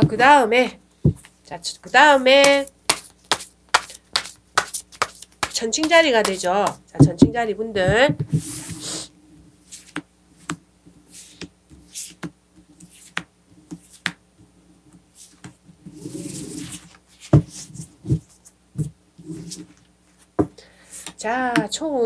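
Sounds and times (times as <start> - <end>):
cards sliding and swishing: 8.3 - 14.2, 15.1 - 18.4.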